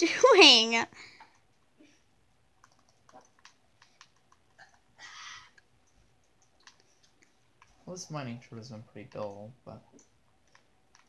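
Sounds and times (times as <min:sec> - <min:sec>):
faint clicks: 0:02.6 - 0:04.9, 0:05.5 - 0:07.8.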